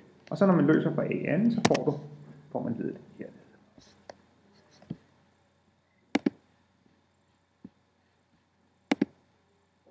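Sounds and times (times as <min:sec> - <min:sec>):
computer mouse clicking: 0:06.2 - 0:06.4, 0:08.9 - 0:09.1.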